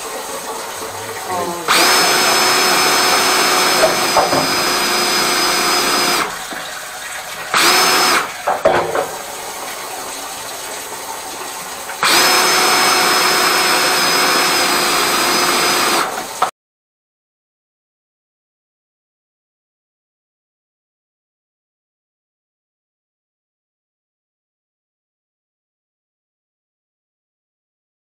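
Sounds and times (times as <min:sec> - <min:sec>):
electric motor whining: 0:01.1 - 0:06.3, 0:07.6 - 0:08.3, 0:12.0 - 0:16.2
knocks: 0:08.5 - 0:09.2.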